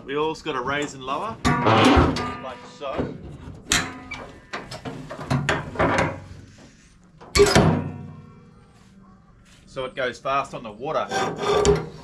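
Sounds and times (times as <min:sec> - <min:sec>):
metal clanking and rattling: 0:00.8 - 0:06.4, 0:07.2 - 0:08.2.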